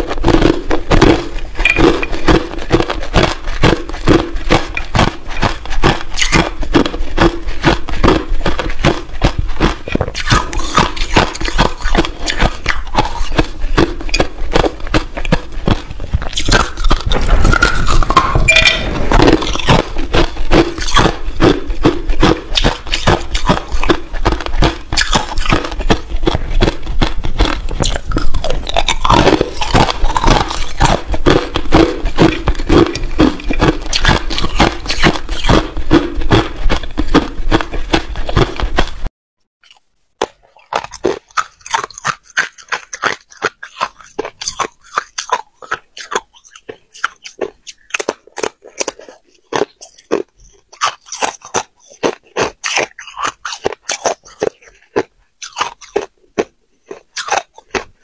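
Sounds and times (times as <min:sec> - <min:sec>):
ice crunching and cracking: 0:09.6 - 0:35.6.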